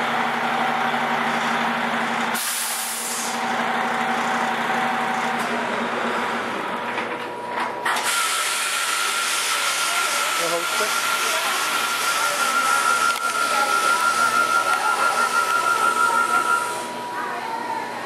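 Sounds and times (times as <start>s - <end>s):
bus engine running: 0.0s - 18.0s
air brake hiss: 2.4s - 3.4s, 8.0s - 9.8s.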